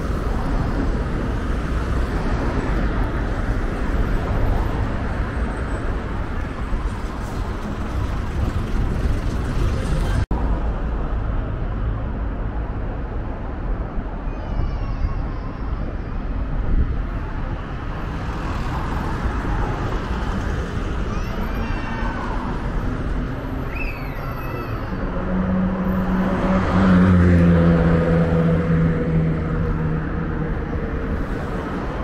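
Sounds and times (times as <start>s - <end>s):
road traffic noise: 0.0s - 32.0s.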